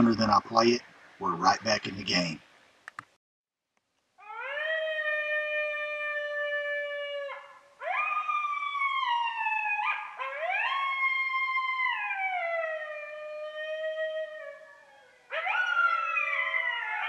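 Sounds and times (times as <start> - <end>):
coyotes howling: 4.2 - 17.0.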